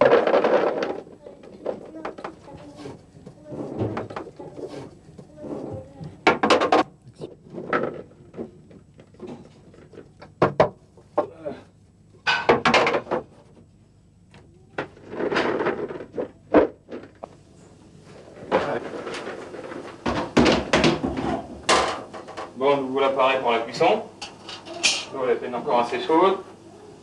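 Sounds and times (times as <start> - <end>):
balls tipped into plastic basin: 0.0 - 1.9
trays knocking and clattering: 0.0 - 4.7, 5.3 - 6.9, 10.3 - 11.3, 12.3 - 13.4, 18.4 - 22.6.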